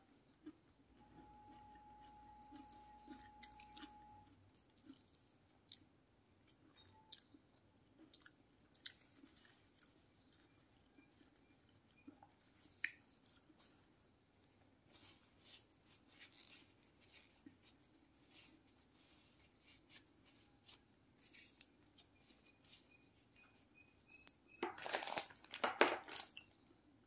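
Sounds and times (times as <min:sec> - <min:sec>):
paper tissues crinkling and tearing: 0:14.8 - 0:22.9, 0:24.7 - 0:26.4.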